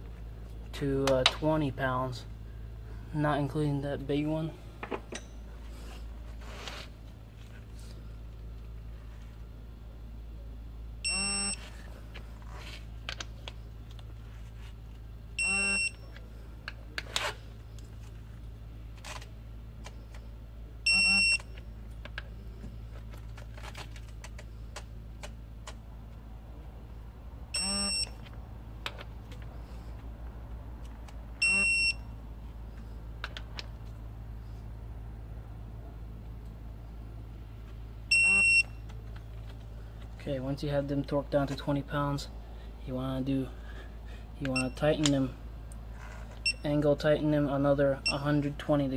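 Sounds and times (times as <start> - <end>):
steady low hum: 0.0 - 48.9
torque wrench short beeps: 11.0 - 11.6, 15.4 - 16.0, 20.8 - 21.6, 27.5 - 28.2, 31.4 - 32.1, 38.1 - 38.8, 44.6 - 44.8.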